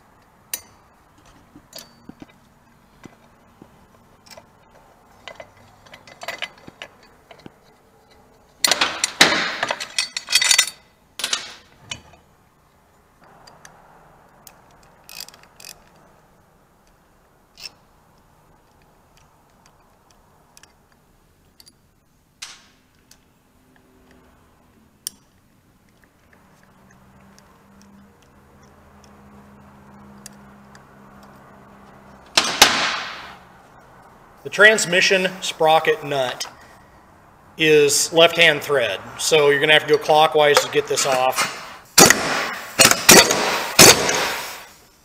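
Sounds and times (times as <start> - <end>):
metal tools clinking: 0.5 - 2.4, 4.2 - 12.3
hand ratchet clicking: 14.4 - 16.1.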